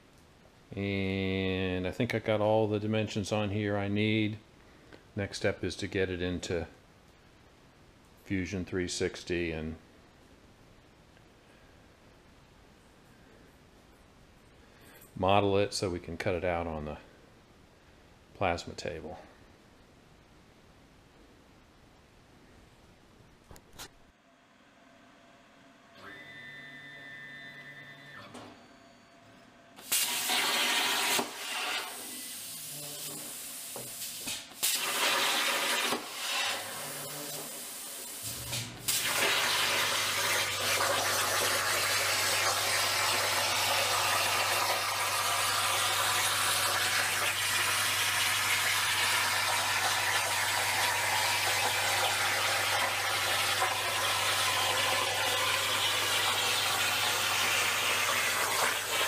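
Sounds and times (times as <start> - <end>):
plasma cutter hissing: 29.8 - 40.8.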